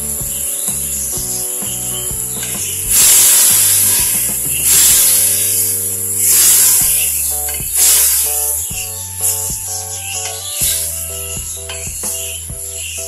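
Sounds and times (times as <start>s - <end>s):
background music with bass: 0.0s - 13.0s
food sizzling in hot oil: 2.9s - 8.4s.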